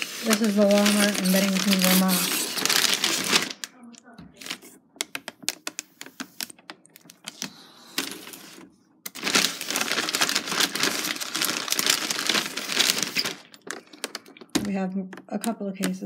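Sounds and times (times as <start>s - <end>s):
plastic crinkling and crackling: 0.0s - 16.0s.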